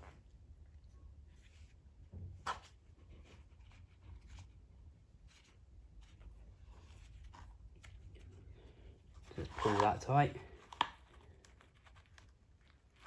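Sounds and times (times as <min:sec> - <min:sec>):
gloved hands rustling: 0:02.8 - 0:13.0.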